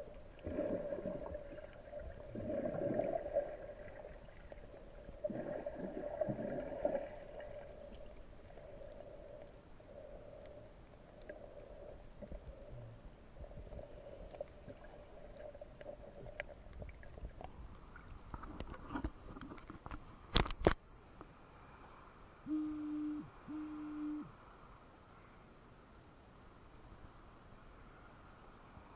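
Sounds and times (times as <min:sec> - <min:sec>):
short low tones: 0:22.4 - 0:24.3.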